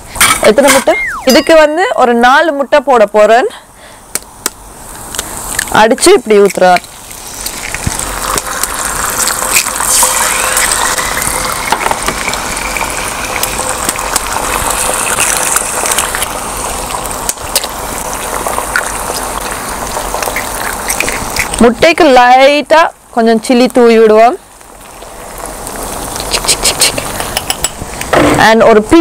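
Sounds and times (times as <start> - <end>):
eggs sizzling in oil: 0.0 - 29.0
eggs cracking: 4.2 - 21.6, 24.6 - 27.8.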